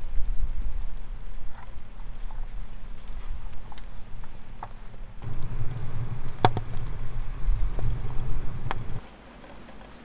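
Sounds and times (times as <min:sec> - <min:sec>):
wood fire roaring: 0:05.1 - 0:09.0
fire crackles: 0:05.1 - 0:10.0.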